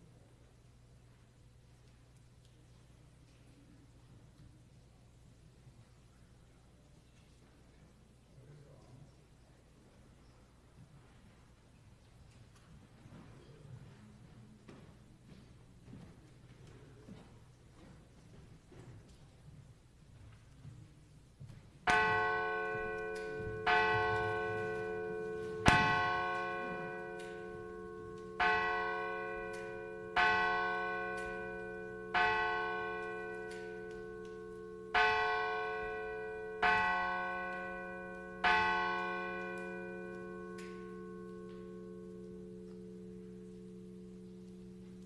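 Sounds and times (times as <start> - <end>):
church bell tolling: 21.9 - 45.0.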